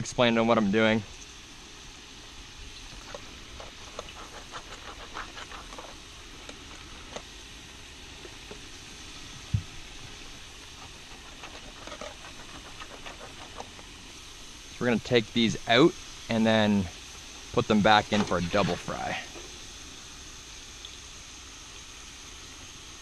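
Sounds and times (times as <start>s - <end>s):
fries sizzling in hot oil: 0.0s - 23.0s
whisk ticking against plastic container: 10.0s - 13.8s.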